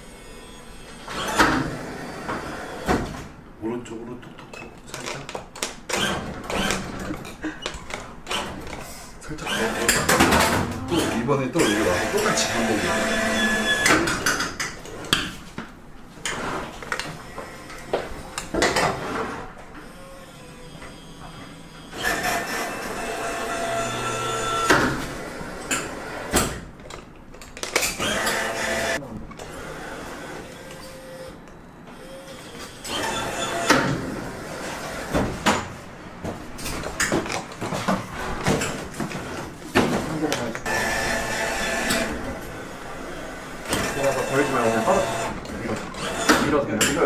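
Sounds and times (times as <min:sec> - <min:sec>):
crane game mechanical whir: 0:10.9 - 0:14.1, 0:19.8 - 0:26.4, 0:27.8 - 0:35.1, 0:40.7 - 0:46.6.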